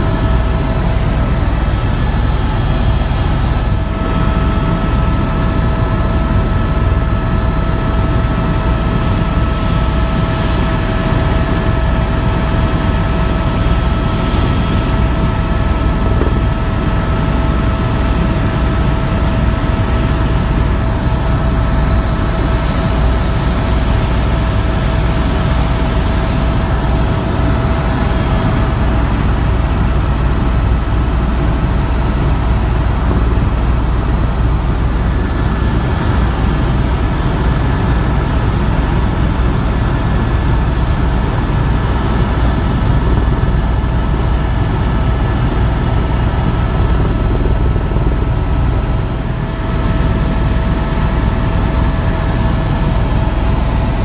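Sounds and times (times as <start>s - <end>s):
high whine: 0.0s - 16.9s
helicopter engine and rotor drone: 0.0s - 54.0s.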